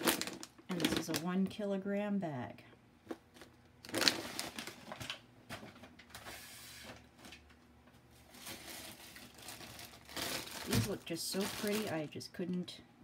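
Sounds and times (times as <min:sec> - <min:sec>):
plastic bags rustling: 0:00.0 - 0:01.4, 0:03.0 - 0:07.5, 0:08.1 - 0:12.2.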